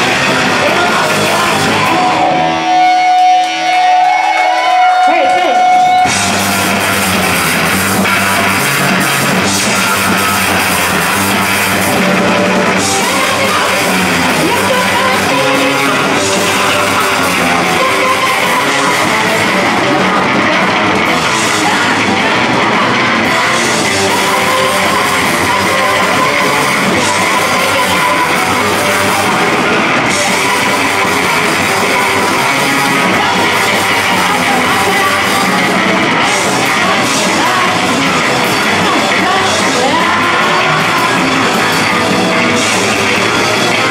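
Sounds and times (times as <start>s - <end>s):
live rock band playing: 0.0s - 43.9s
woman singing: 0.1s - 2.4s, 12.7s - 43.1s.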